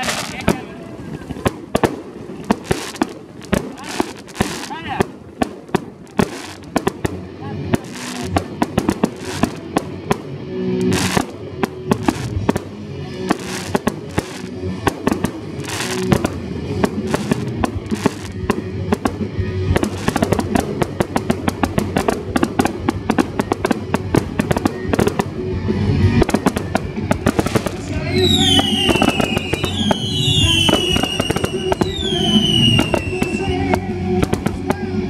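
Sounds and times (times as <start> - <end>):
fireworks bangs and crackles: 0.0 - 35.0
fireworks hissing bursts: 0.0 - 35.0
music playing: 0.0 - 35.0.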